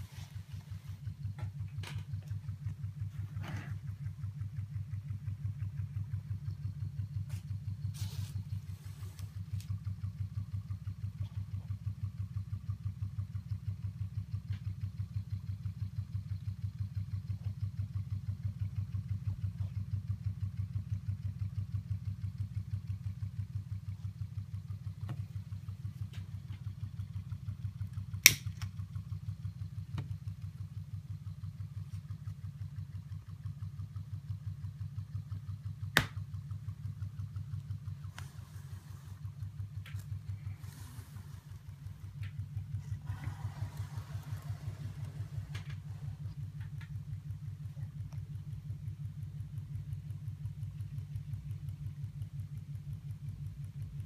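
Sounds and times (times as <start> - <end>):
hot-air engine running: 35.8 - 48.5.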